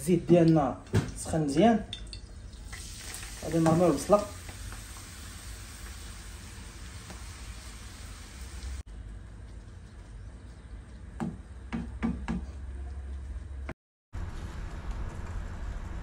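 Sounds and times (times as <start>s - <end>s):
onion sizzling in oil: 2.5s - 8.8s.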